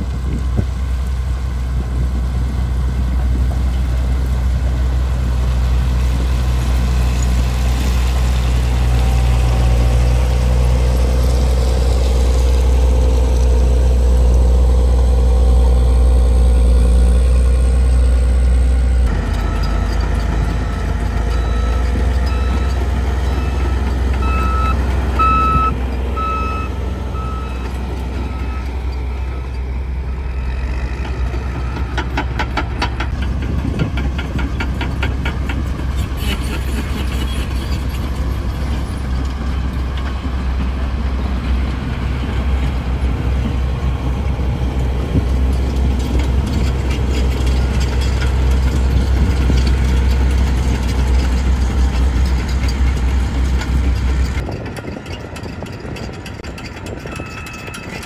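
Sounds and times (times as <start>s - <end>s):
heavy machinery rumbling: 0.0s - 58.0s
reversing alarm beeping: 19.1s - 30.5s, 57.0s - 58.0s.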